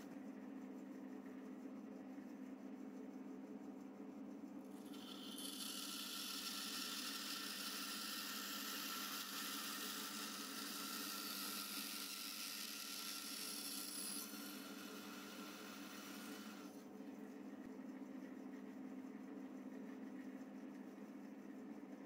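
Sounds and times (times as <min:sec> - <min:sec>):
bandsaw motor hum: 0:04.7 - 0:16.8.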